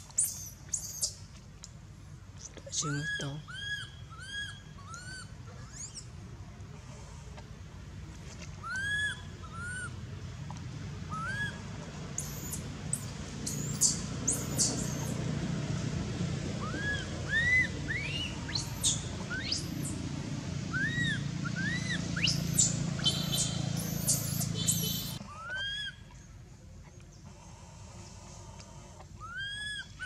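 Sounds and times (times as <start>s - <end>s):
baby monkey crying: 3.0s - 6.0s, 8.6s - 9.9s, 16.6s - 19.9s, 20.8s - 26.0s, 29.2s - 30.0s.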